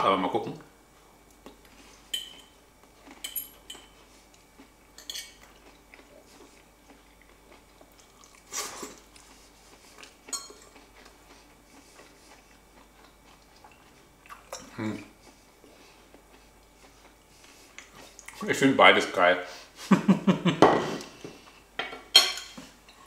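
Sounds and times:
quiet chewing: 1.0 - 18.4
fork clinking on ceramic plate: 2.2 - 2.5, 5.0 - 5.4, 10.3 - 10.7.

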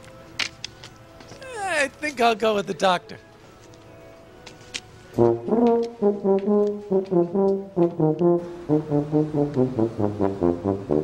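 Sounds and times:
bouncy low brass comedic music: 5.1 - 11.0.

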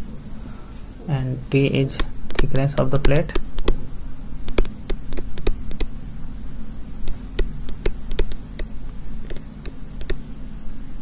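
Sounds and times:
steady low hum: 0.0 - 11.0
stylus tapping on tablet screen: 2.0 - 3.8, 4.5 - 5.9, 7.0 - 10.2.

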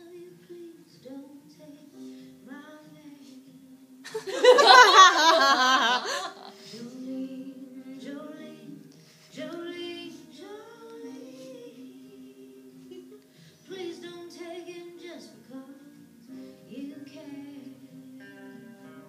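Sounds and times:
woman singing unaccompanied: 0.0 - 19.0
woman breathing: 6.0 - 7.0, 9.0 - 9.4, 13.2 - 13.7.

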